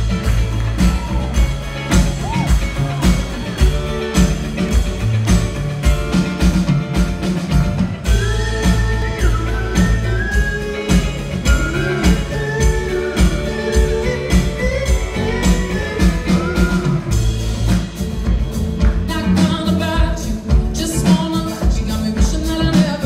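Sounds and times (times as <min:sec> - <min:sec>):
drum kit: 0:00.0 - 0:23.0
guitar: 0:00.0 - 0:23.0
upright bass: 0:00.0 - 0:23.0
woman singing: 0:08.1 - 0:17.1, 0:19.1 - 0:23.0.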